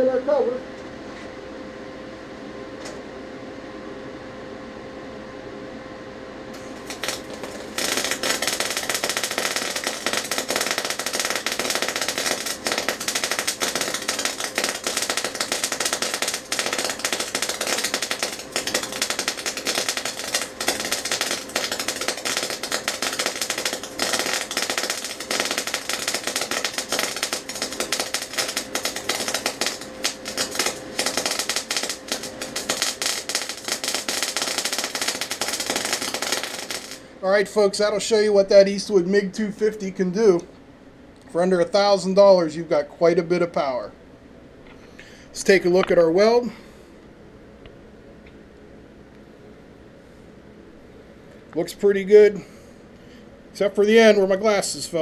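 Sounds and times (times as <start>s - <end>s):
low steady hum: 0.0s - 55.0s
welding arc crackling hiss: 6.5s - 38.7s.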